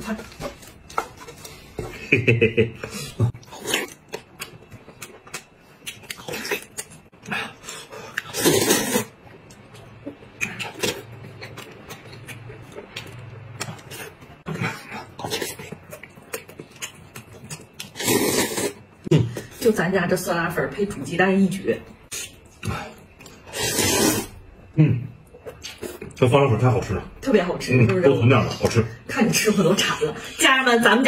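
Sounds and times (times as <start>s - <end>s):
man chewing: 0.2s - 19.6s, 22.1s - 24.4s, 25.1s - 26.2s
loud slurp: 8.2s - 9.1s, 17.9s - 18.8s, 23.5s - 24.4s.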